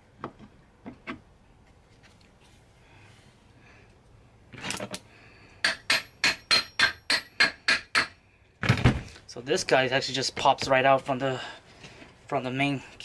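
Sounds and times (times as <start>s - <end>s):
metallic taps with ringing: 5.6s - 8.1s.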